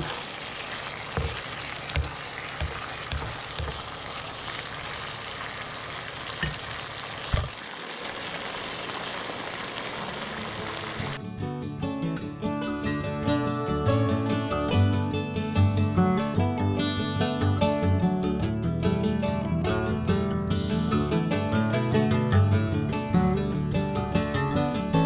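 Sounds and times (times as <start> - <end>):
fish sizzling in a frying pan: 0.0 - 11.2
spatula knocking against pan: 1.1 - 4.0.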